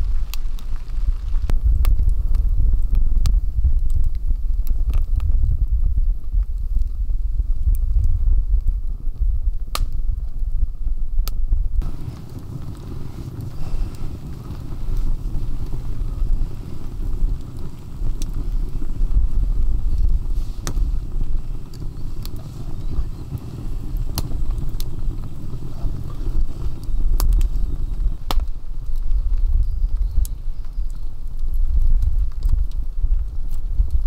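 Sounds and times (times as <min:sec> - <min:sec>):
sharp pops of fire: 0:00.0 - 0:10.5, 0:11.2 - 0:34.0
low rumble: 0:00.0 - 0:34.0
wood fire crackling: 0:00.0 - 0:34.0.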